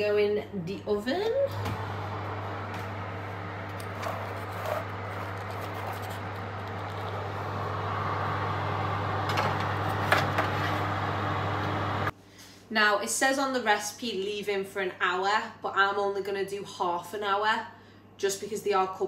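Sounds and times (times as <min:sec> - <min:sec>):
oven fan humming: 0:01.1 - 0:12.1.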